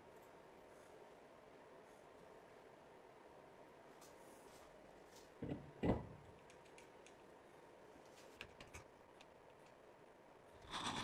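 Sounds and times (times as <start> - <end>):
faint metallic clicks and taps: 6.3 - 7.3.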